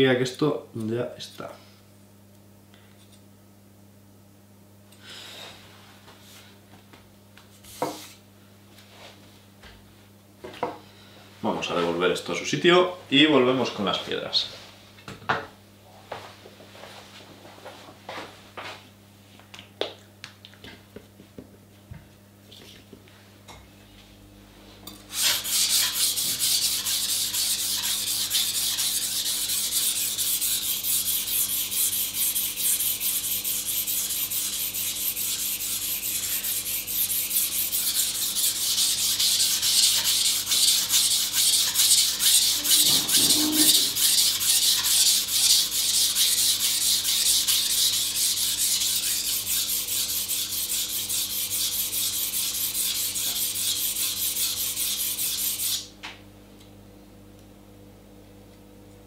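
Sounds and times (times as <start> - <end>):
knife rasping on whetstone: 25.1 - 55.8.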